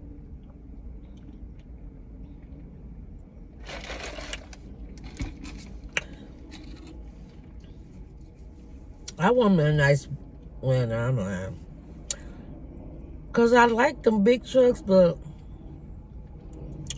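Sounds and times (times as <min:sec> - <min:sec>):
low rumble inside a car: 0:00.0 - 0:16.9
food packaging rustle: 0:03.6 - 0:07.4.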